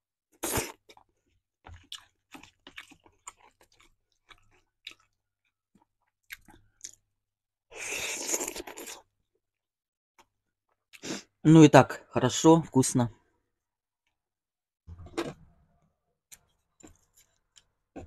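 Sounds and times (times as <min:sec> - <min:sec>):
chewing and biting food: 0:00.4 - 0:07.0, 0:16.3 - 0:18.0.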